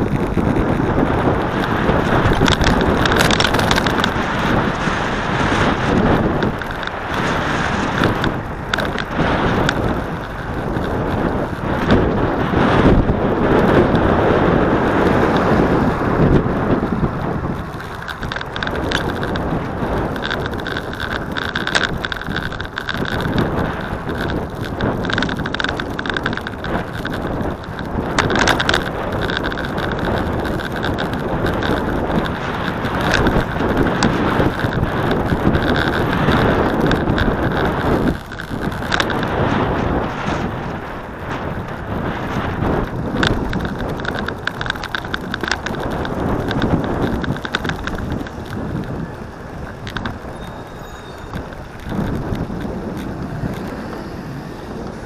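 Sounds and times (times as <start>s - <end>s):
wheels rumbling on road: 0.0s - 55.0s
wind buffeting microphone: 0.0s - 55.0s.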